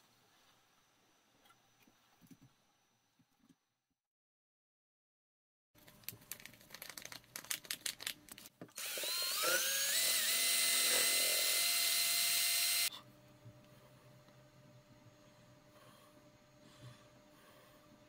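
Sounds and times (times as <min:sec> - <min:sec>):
electric drill whining: 0:08.8 - 0:12.9.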